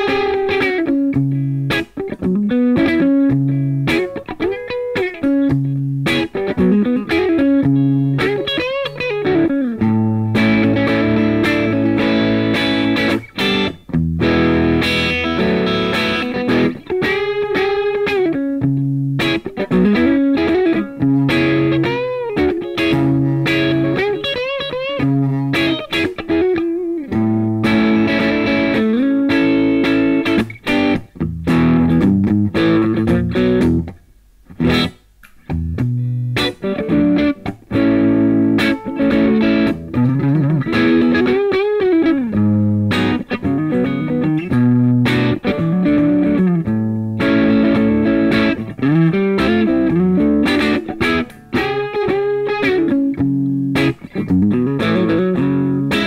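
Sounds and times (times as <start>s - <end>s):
electric guitar playing: 0.0s - 56.0s.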